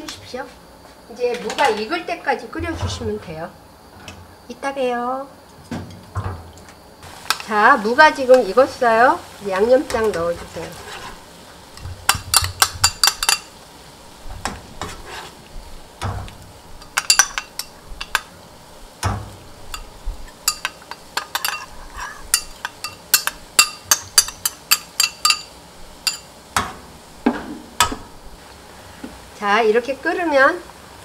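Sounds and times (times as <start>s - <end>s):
metal spoon tapping glass bowl: 22.3s - 26.2s.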